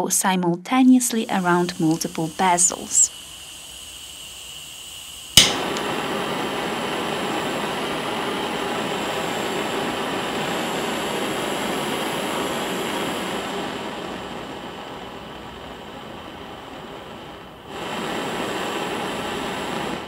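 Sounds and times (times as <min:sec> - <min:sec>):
torch flame hissing: 0:00.8 - 0:20.0
torch ignition click: 0:01.2 - 0:13.6.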